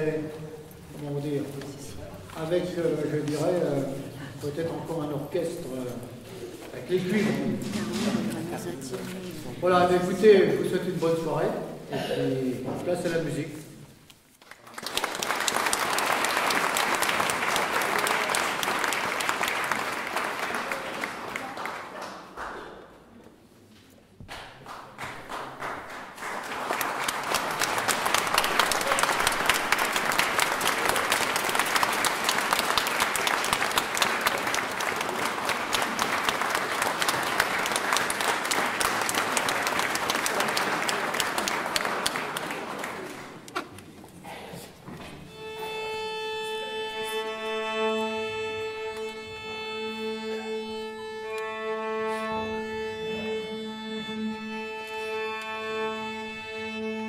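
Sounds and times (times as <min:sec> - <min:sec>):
audience applauding: 0:14.4 - 0:23.0, 0:24.3 - 0:43.7
string orchestra playing: 0:45.3 - 0:57.0.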